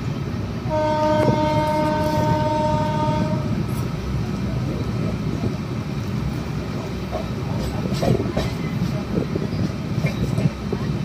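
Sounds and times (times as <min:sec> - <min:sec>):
train rumbling and rattling: 0:00.0 - 0:11.0
locomotive horn blast: 0:00.7 - 0:03.6.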